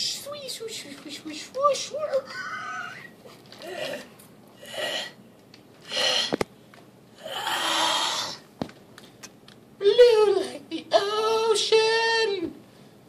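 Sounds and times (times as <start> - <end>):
person's breathy vocal sounds: 5.8 - 6.4, 7.2 - 8.4.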